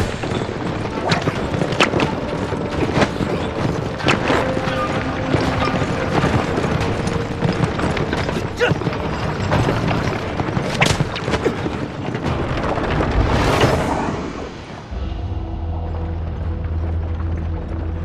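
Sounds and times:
dramatic music score: 0:00.0 - 0:18.0
heavy rumbling with crashing hits: 0:00.0 - 0:18.0
loud whooshing crash: 0:12.6 - 0:17.1.

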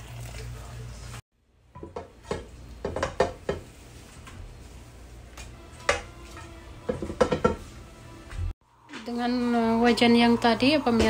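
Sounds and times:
cookware knocking and clinking: 0:01.7 - 0:03.7, 0:06.8 - 0:07.7.

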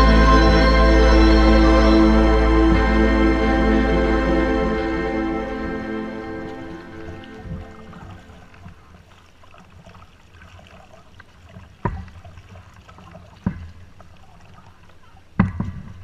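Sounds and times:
paddles dipping in water: 0:06.4 - 0:16.0
water trickling and dripping: 0:07.0 - 0:15.5.

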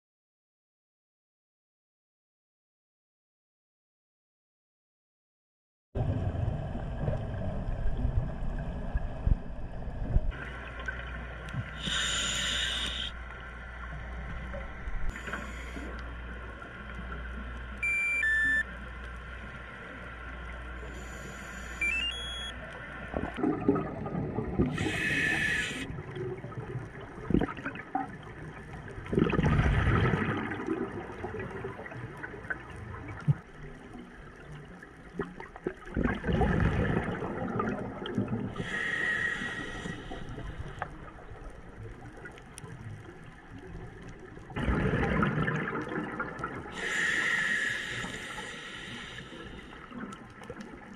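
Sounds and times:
regulator inhale hiss: 0:11.7 - 0:13.2, 0:15.1 - 0:16.1, 0:20.8 - 0:21.9, 0:24.7 - 0:25.9, 0:38.6 - 0:41.1, 0:46.7 - 0:50.0
electronic beep: 0:17.8 - 0:18.7, 0:21.0 - 0:22.6
exhaled bubbles gurgling: 0:23.0 - 0:50.9.

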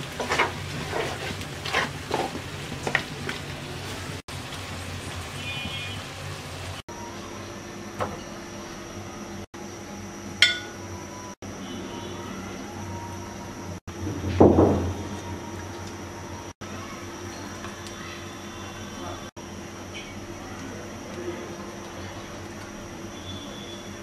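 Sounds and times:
spatula scraping and knocking pan: 0:00.0 - 0:03.4
spoon clinking on ceramic dish: 0:10.4 - 0:10.8.

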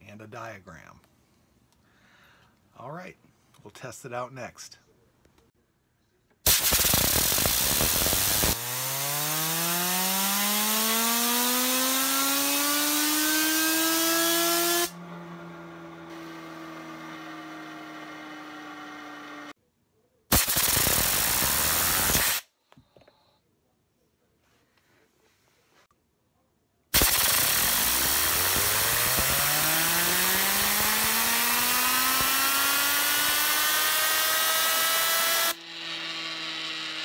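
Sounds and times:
compressed air blasting: 0:06.5 - 0:15.0, 0:20.3 - 0:22.5, 0:27.0 - 0:36.1
fidget spinner whining: 0:27.0 - 0:37.0.

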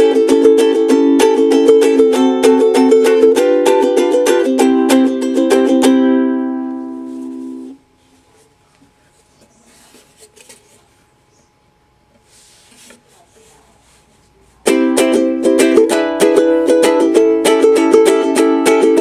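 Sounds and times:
quick rhythmic ukulele strumming: 0:00.0 - 0:07.8, 0:14.6 - 0:19.0
ukulele chord ringing: 0:00.0 - 0:07.8, 0:14.7 - 0:19.0
small knocks and rustles: 0:12.1 - 0:14.4.

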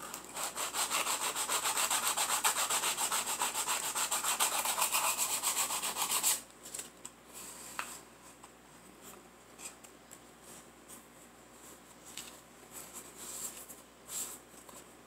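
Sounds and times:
sandpaper rubbing on wood: 0:00.4 - 0:06.4.

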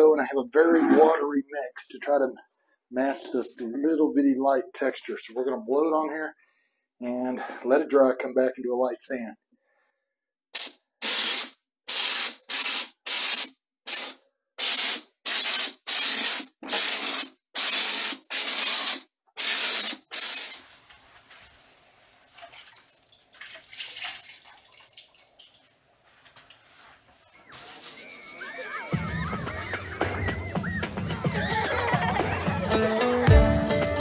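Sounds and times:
spray gun hissing bursts: 0:10.6 - 0:20.8, 0:27.5 - 0:30.3.

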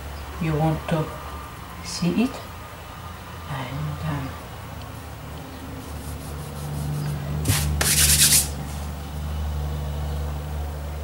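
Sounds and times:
hands rubbing icing: 0:05.8 - 0:08.9.

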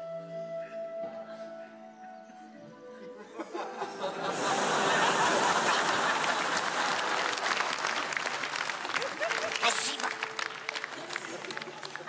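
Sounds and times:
audience applauding: 0:04.3 - 0:12.0.

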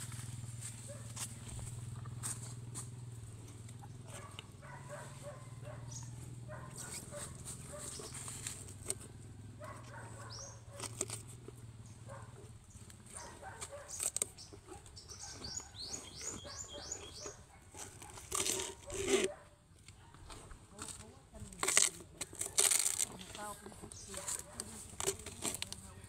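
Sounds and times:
rustling and crinkling bag: 0:06.8 - 0:09.0, 0:13.0 - 0:26.0.

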